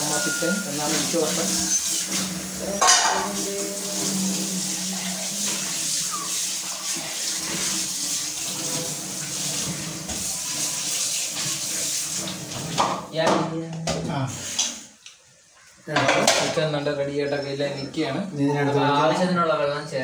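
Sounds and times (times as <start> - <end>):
water running from a tap: 0.0 - 17.0.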